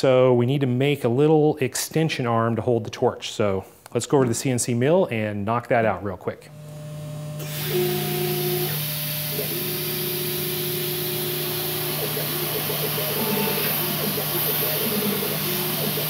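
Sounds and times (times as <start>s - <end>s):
spindle hum: 6.5s - 16.0s
drill cutting metal: 7.3s - 16.0s
coolant hiss: 7.4s - 16.0s.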